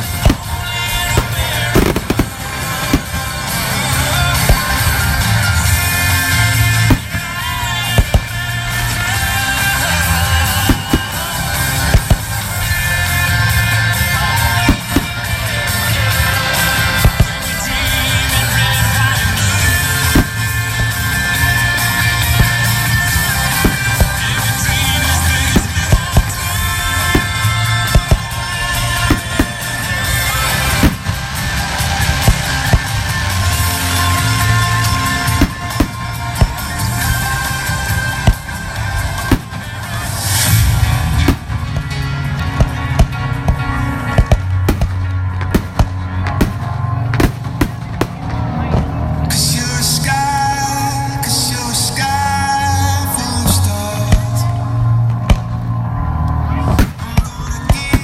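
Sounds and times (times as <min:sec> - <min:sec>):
firework shells bursting: 0:00.0 - 0:12.9, 0:19.2 - 0:43.2
rock music with singing: 0:00.0 - 0:58.0.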